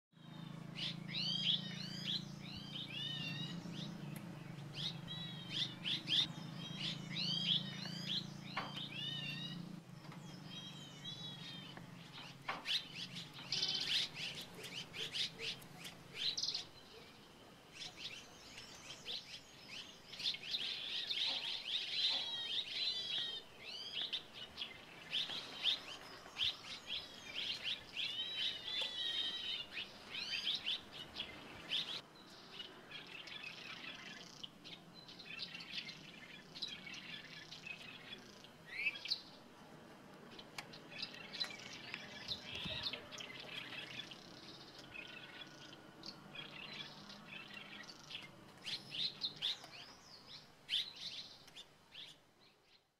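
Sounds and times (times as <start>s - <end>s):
swallows twittering: 0.2s - 39.4s, 40.3s - 52.8s.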